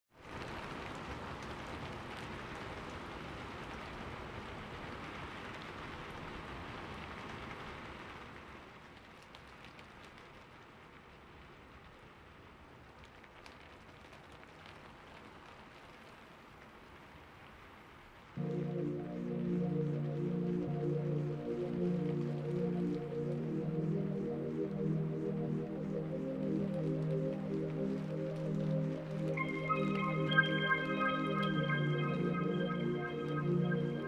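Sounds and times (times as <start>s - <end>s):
steady rain hiss: 0.2s - 34.0s
raindrops ticking: 18.4s - 34.0s.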